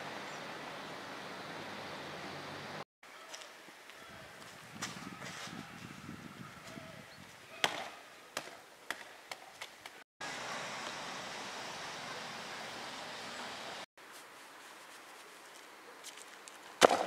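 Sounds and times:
steady hiss: 10.2 - 15.8
ball bouncing on asphalt: 16.8 - 17.0.

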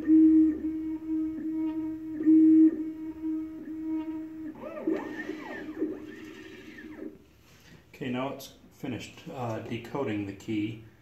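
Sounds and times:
key cutting machine whining: 0.0 - 7.2.

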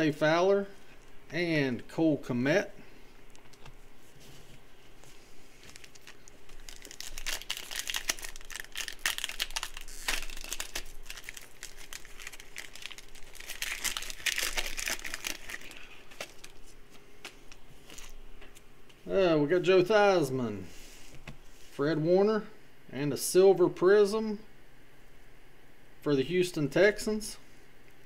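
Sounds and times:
foil wrapper crinkling and tearing: 5.6 - 18.2.

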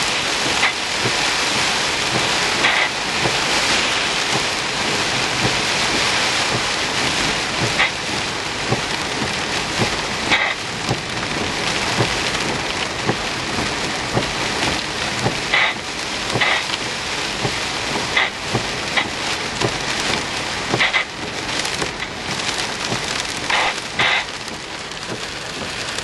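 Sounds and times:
heavy rain on a vehicle: 0.0 - 26.0.

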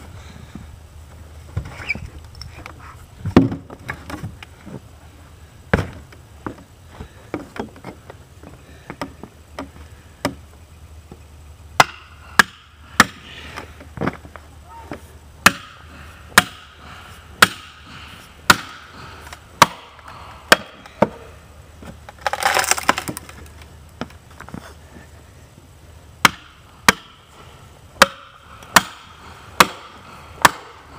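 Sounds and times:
hatchet chopping wood: 8.9 - 10.4, 11.8 - 13.2, 15.4 - 16.8, 17.4 - 21.2, 22.1 - 23.3, 26.2 - 27.2, 28.0 - 30.8.

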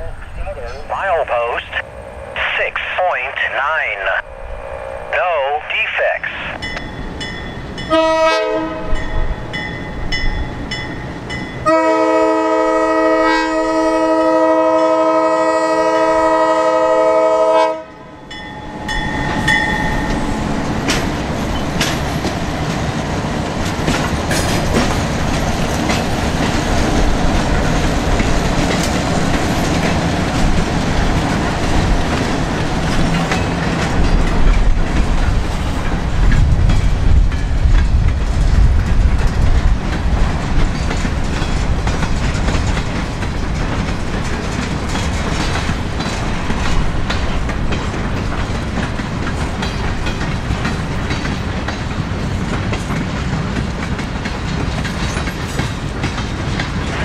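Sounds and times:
locomotive air horn: 7.9 - 9.0, 11.6 - 18.0
train wheels clattering on rails: 18.3 - 57.0.

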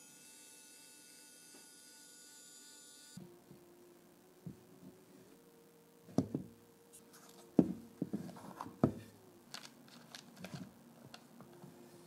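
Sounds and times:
plastic box knocking on wood: 8.8 - 9.0.

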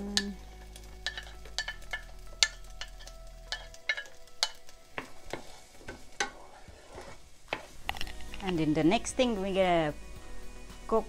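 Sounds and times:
frying crackle: 0.0 - 11.0
onion scraped off a plate: 6.3 - 7.8.

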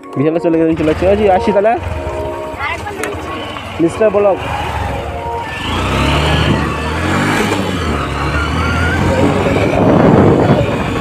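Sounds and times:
small motorbike engine: 0.7 - 11.0
wind rush: 4.6 - 11.0.

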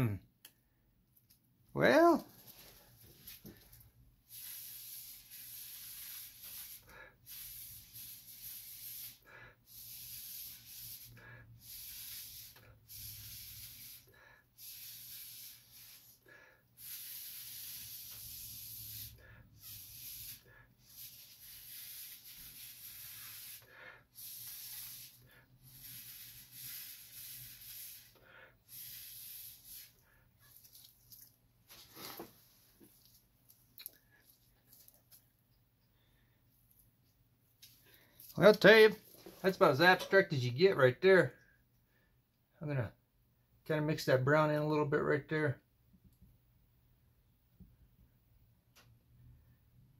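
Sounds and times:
air hissing from a tube: 2.6 - 30.1.

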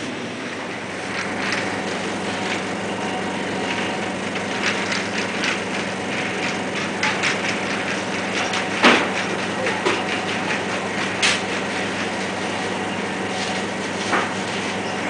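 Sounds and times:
electrical hum: 0.0 - 15.0
rattling and clattering: 1.0 - 12.3.

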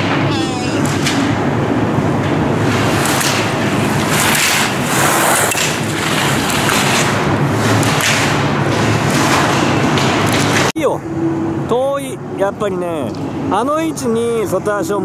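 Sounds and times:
steady low hum: 0.0 - 15.0
skis scraping on snow: 3.8 - 8.3.

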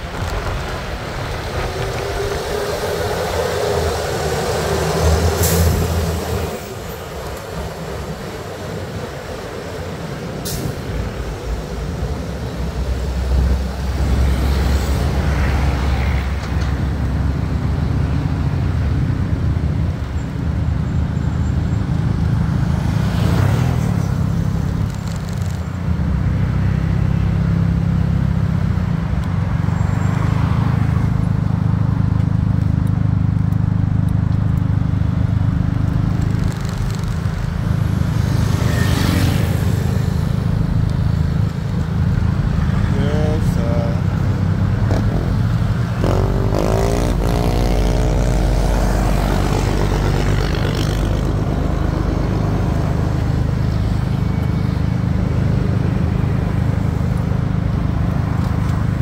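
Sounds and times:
traffic: 0.0 - 59.0
wind and road noise: 0.0 - 59.0
motorcycle engine rumble: 31.1 - 59.0.

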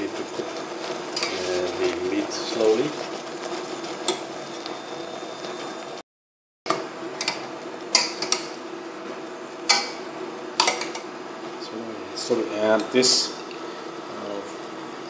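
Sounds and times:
utensils and dishes clattering: 1.1 - 1.7.

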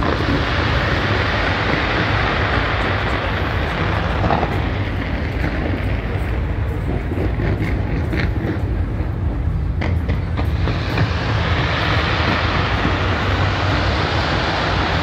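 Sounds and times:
sharp firework cracks: 0.0 - 6.4, 9.8 - 15.0
fireworks rumbling: 0.0 - 15.0.

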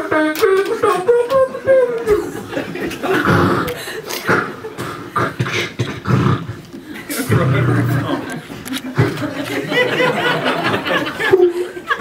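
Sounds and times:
man making vocal sound effects: 7.1 - 8.3.

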